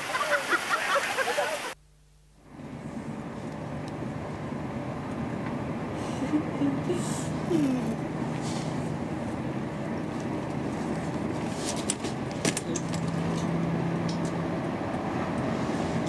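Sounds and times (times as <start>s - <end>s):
camcorder hum and hiss: 0.0s - 4.1s.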